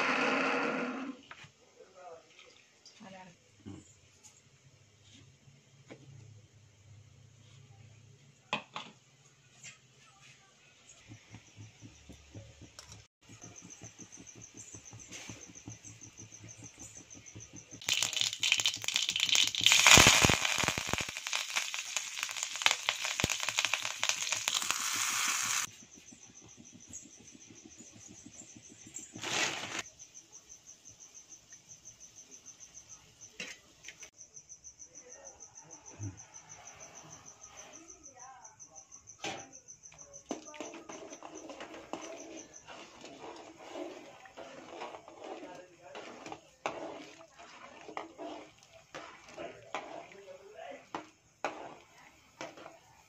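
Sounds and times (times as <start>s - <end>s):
seeds sizzling and crackling in oil: 10.8s - 34.1s, 40.6s - 53.0s.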